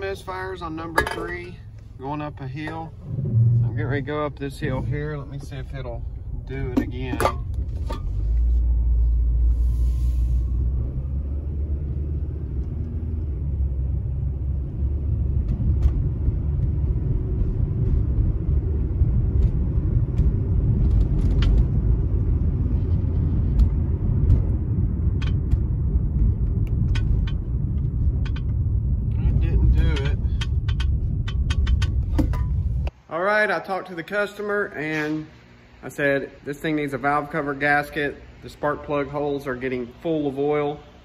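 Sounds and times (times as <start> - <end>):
car engine running: 0.0 - 32.9
road rumble: 0.0 - 33.0
light clicks and rattles: 29.4 - 32.6.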